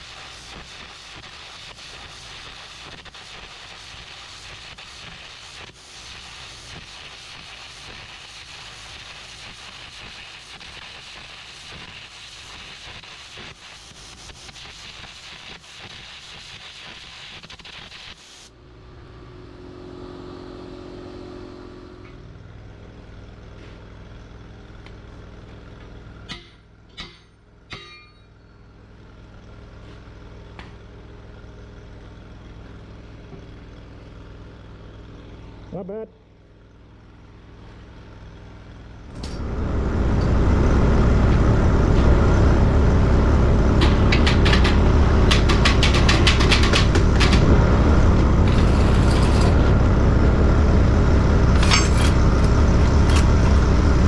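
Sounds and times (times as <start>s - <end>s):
welding arc crackling: 0.0s - 18.5s, 39.1s - 54.0s
low engine hum: 28.4s - 54.0s.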